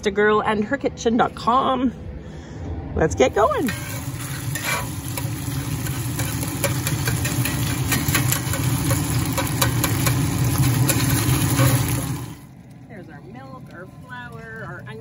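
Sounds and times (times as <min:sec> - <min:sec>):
low hum: 0:00.0 - 0:15.0
spatula stirring in a pan: 0:03.7 - 0:12.4
sausage sizzling in a pan: 0:03.7 - 0:12.5.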